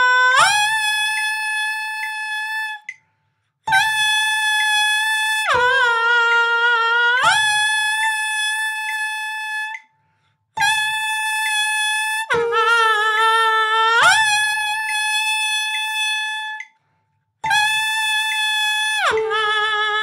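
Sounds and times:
saxophone mouthpiece pitch bending: 0.0s - 3.0s, 3.7s - 10.0s, 10.6s - 16.8s, 17.4s - 20.0s
breath: 3.0s - 3.6s, 9.9s - 10.5s, 16.8s - 17.3s.

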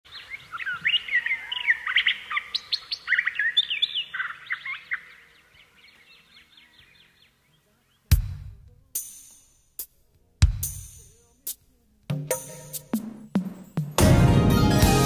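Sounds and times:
small birds chirping: 0.1s - 9.4s.

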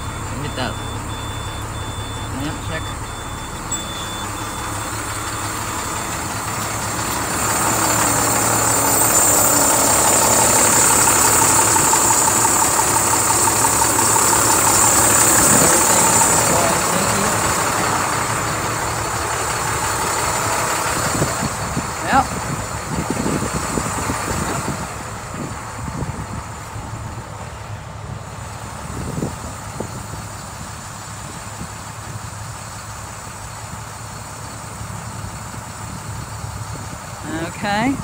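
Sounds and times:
high-pitched beep: 0.0s - 5.5s
diesel bus engine idling: 0.0s - 38.0s.

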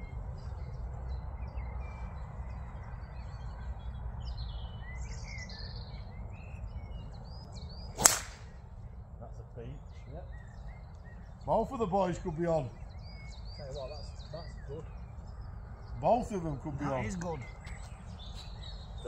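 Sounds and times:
birds chirping: 0.0s - 19.0s
golf ball struck off tee: 8.0s - 8.6s.

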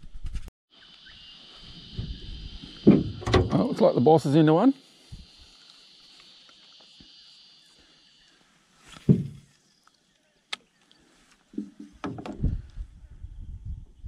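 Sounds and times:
dull thump in metal boat: 9.1s - 9.4s.

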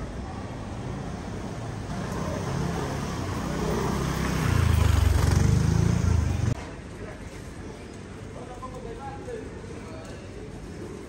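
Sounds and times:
street noise: 0.0s - 11.0s
engine humming: 1.2s - 6.6s.

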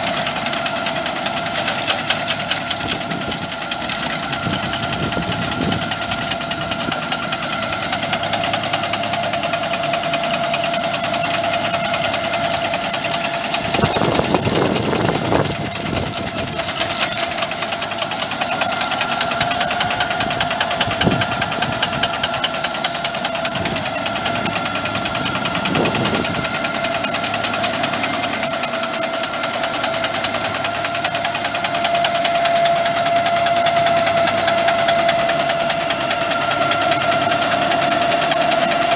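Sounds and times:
tractor engine with high whine: 0.0s - 38.9s
branches cracking as cut: 11.0s - 20.2s, 37.2s - 38.9s.

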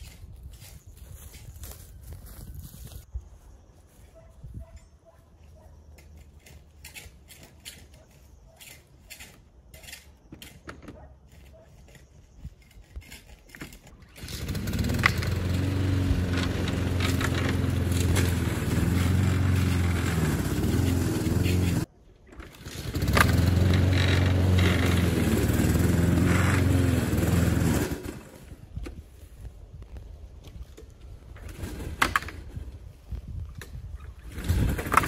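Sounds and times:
lawn mower engine running: 14.0s - 28.6s.

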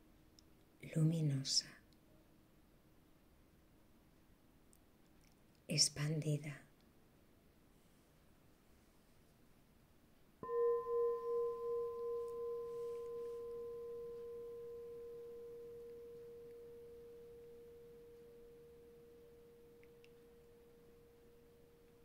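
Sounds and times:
singing bowl ringing: 10.4s - 22.0s.

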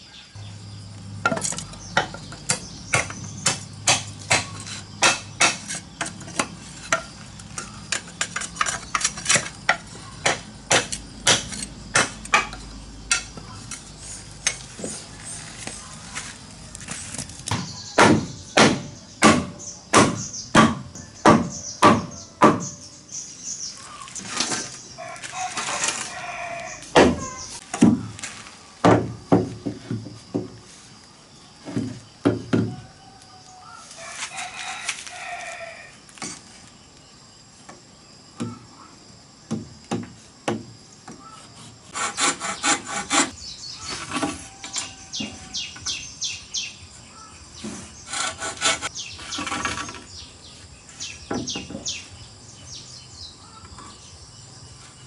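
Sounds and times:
birds chirping: 0.0s - 35.9s, 40.8s - 55.0s
machete strokes on bamboo: 33.8s - 36.7s, 41.5s - 45.6s, 47.6s - 50.1s.

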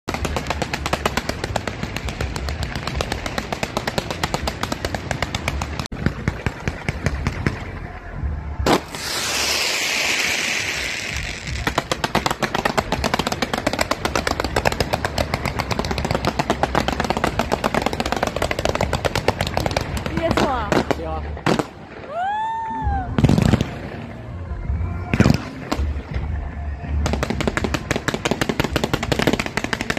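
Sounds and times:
fireworks crackling: 0.0s - 29.9s.

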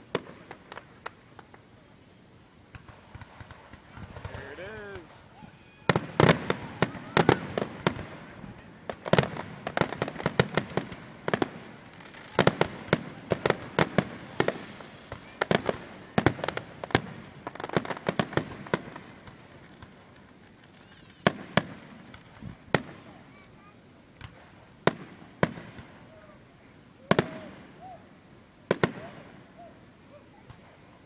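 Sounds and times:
fireworks bursting with bangs: 0.0s - 31.0s.

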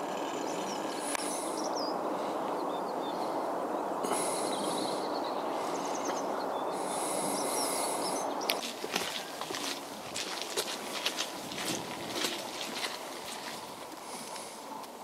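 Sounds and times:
bird chirps and twitters: 0.0s - 3.3s, 4.4s - 9.6s
steady rushing noise: 0.0s - 15.0s.

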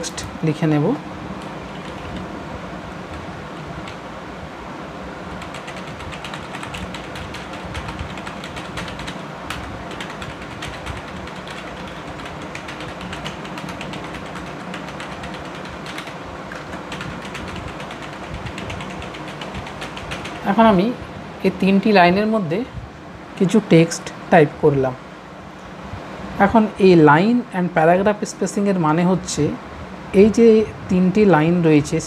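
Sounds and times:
keyboard typing clicks: 5.4s - 20.4s.

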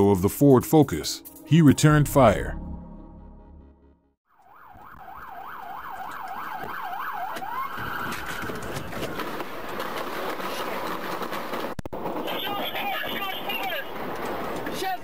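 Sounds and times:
siren yelping: 4.3s - 9.2s
street noise: 4.4s - 15.0s.

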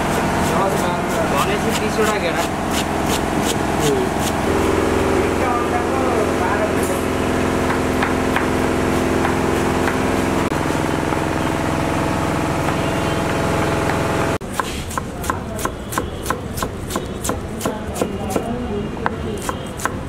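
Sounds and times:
steady engine-like hum: 0.0s - 14.4s.

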